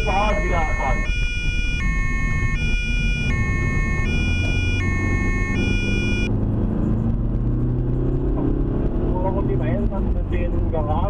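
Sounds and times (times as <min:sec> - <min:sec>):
two-tone emergency siren: 0:00.0 - 0:06.3
car engine and tyre noise: 0:00.0 - 0:11.0.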